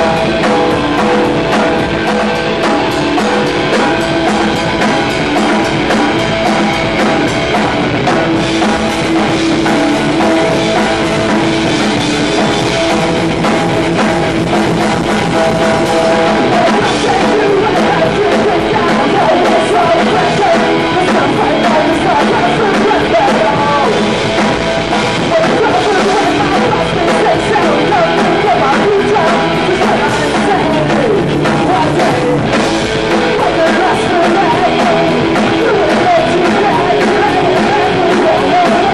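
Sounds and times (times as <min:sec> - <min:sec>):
bass guitar: 0:00.0 - 0:38.9
drum kit: 0:00.0 - 0:38.9
electric guitar: 0:00.0 - 0:38.9
man singing into microphone: 0:15.3 - 0:38.9.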